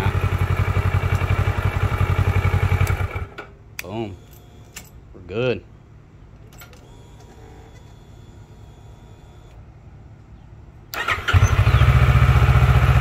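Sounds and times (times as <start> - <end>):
motorcycle engine idling: 0.0 - 3.4, 11.0 - 13.0
motorcycle starter cranking: 10.9 - 12.2.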